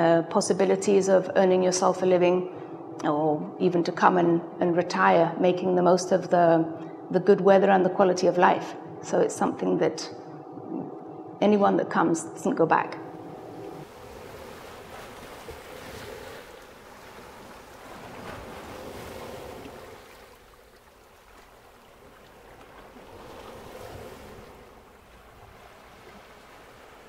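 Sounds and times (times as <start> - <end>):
sea waves rushing: 13.0 - 27.0.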